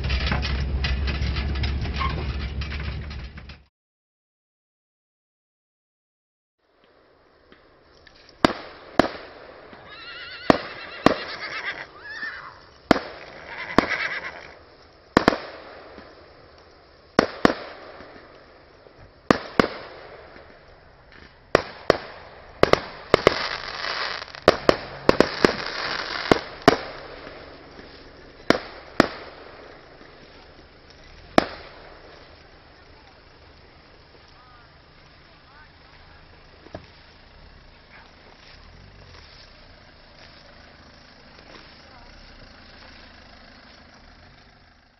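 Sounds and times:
firework crackling: 0:06.7 - 0:44.9
firework bangs: 0:08.4 - 0:11.4, 0:12.7 - 0:14.0, 0:14.6 - 0:40.7.

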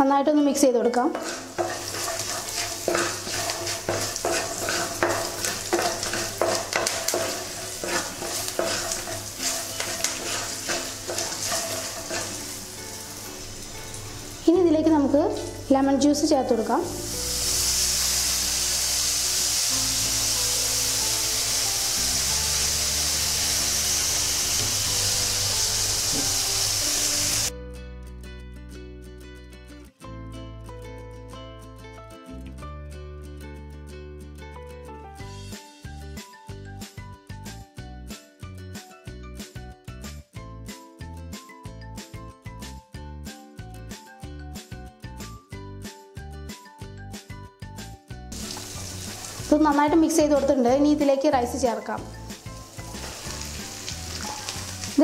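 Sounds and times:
background music: 0:00.0 - 0:55.0
wooden spatula scraping pan: 0:01.1 - 0:12.6
spices sizzling in hot oil: 0:01.1 - 0:27.5, 0:48.3 - 0:55.0.

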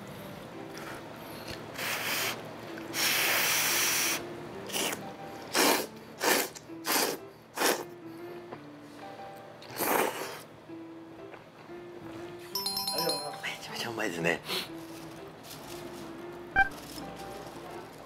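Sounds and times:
person slurping noodles: 0:03.0 - 0:07.8, 0:09.7 - 0:10.5.

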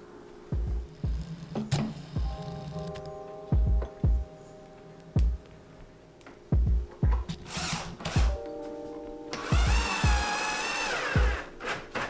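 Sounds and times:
background music with kick drum: 0:00.5 - 0:05.6, 0:06.4 - 0:11.6
power drill whining: 0:09.4 - 0:12.0.

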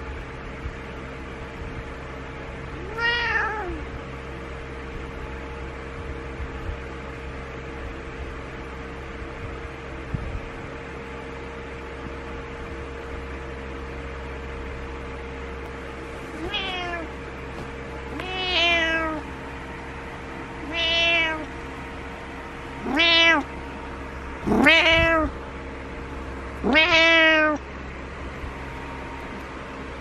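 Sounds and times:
cat meowing: 0:02.8 - 0:03.9, 0:16.4 - 0:17.2, 0:18.1 - 0:19.3, 0:20.6 - 0:21.5, 0:22.8 - 0:23.5, 0:24.4 - 0:25.4, 0:26.6 - 0:27.6.

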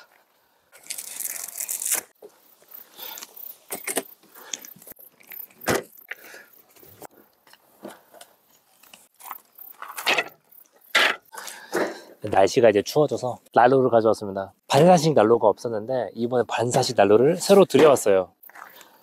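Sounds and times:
wooden folding chairs clacking: 0:09.3 - 0:11.2.

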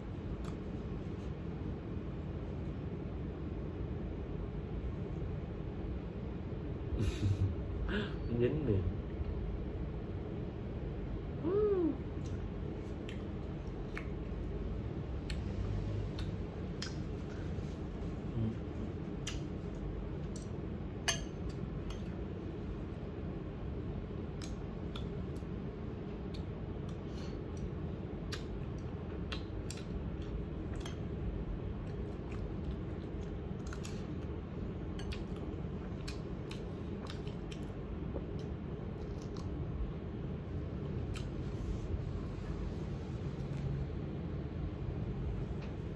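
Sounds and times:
chewing: 0:28.3 - 0:31.1, 0:31.8 - 0:39.6.

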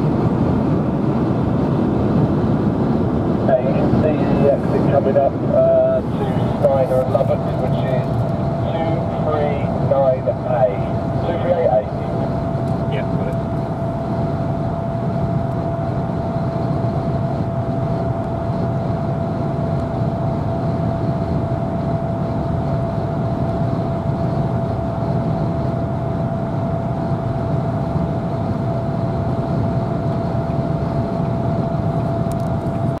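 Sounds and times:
mid-pitched whine: 0:00.0 - 0:33.0.

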